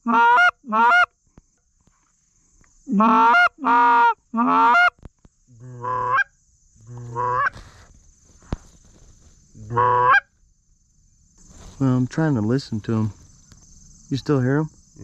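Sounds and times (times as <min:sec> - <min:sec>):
goose call honking: 0:00.0 - 0:01.1, 0:02.9 - 0:05.0, 0:05.6 - 0:06.3, 0:06.9 - 0:07.6, 0:09.7 - 0:10.3.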